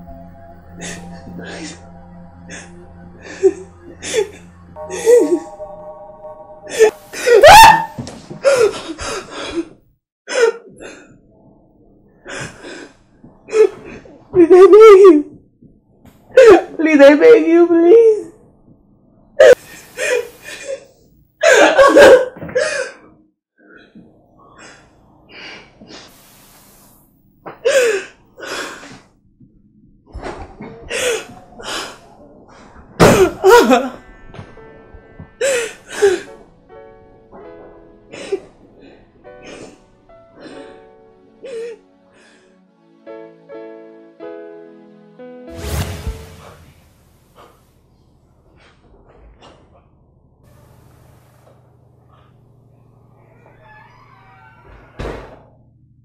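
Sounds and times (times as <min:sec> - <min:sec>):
woman wailing: 0:06.7 - 0:08.1
woman gasping and crying out: 0:06.7 - 0:10.5
woman sobbing: 0:13.5 - 0:15.4.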